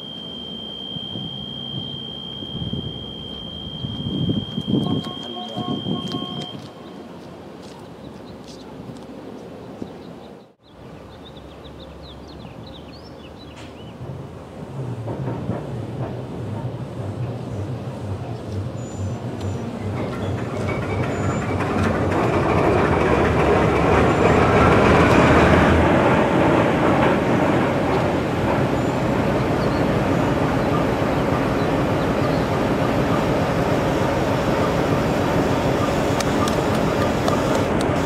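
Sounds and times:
diesel engine starting and idling: 17.1 - 38.0.

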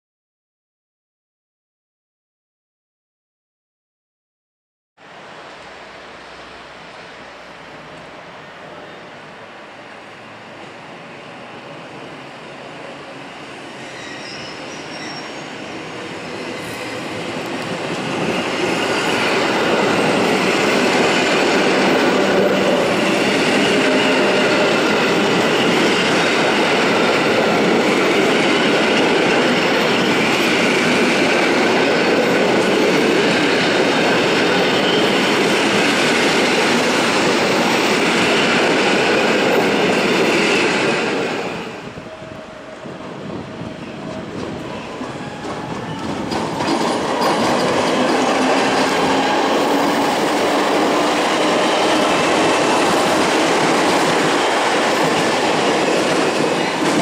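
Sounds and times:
train passing rumble: 15.5 - 57.0.

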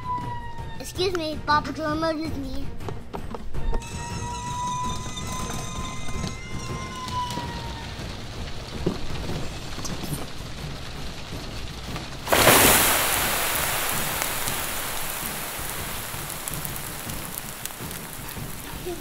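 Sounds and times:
loud spray hiss: 12.2 - 19.0.

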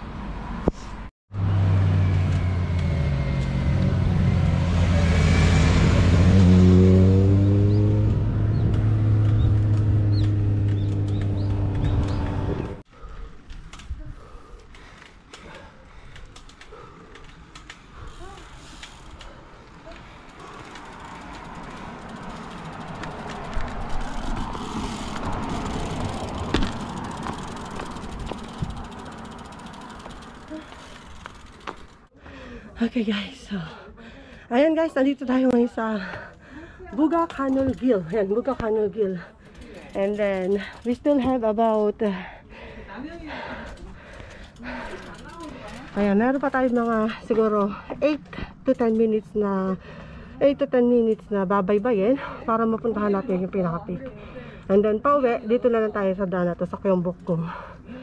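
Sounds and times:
motorcycle passing: 1.3 - 12.8, 16.8 - 32.1, 36.9 - 41.1, 43.0 - 47.9
bicycle clicks: 8.5 - 32.1, 35.5 - 50.2.

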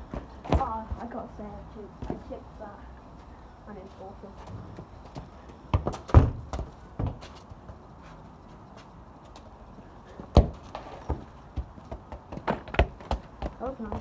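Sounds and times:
football kicked on grass: 5.7 - 7.3, 10.3 - 14.0.

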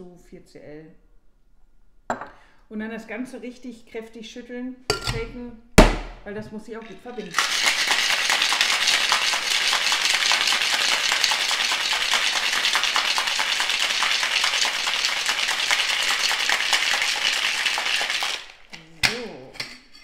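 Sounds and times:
ice rattling in cocktail shaker: 6.7 - 19.6.

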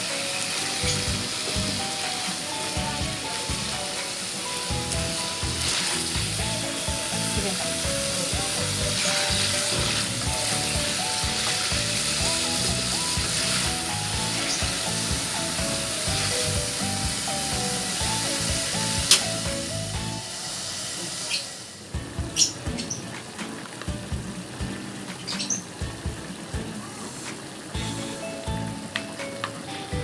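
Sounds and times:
background music: 0.0 - 21.0, 21.6 - 30.0
potatoes sizzling in oil: 0.0 - 30.0
spatula turning food: 4.5 - 19.3.

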